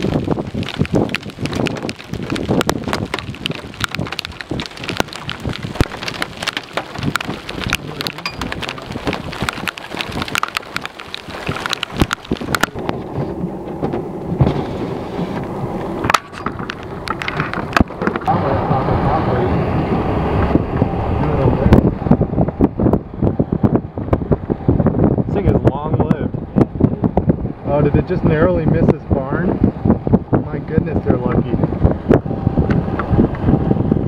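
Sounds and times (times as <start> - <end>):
rain tapping on car roof: 0.0 - 18.4, 21.6 - 28.1.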